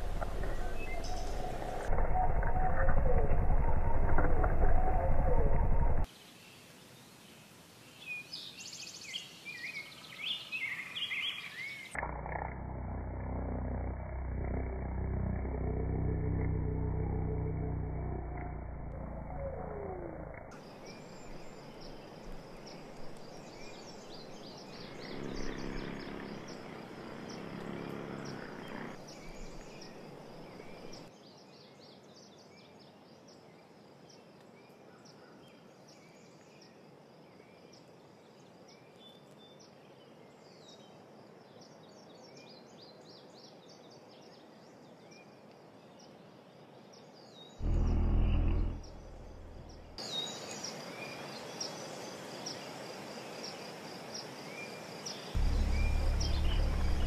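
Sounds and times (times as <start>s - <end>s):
low insect buzz: 20.4s - 31.1s, 47.6s - 50.1s, 55.4s - 57.0s
bee buzzing: 47.6s - 50.0s, 55.4s - 57.0s
high insect drone: 52.1s - 57.0s.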